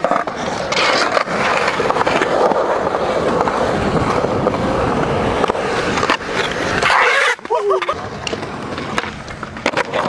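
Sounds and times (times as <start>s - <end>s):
skateboard clacks: 0.0s - 10.0s
skateboard rolling on concrete: 0.0s - 10.0s.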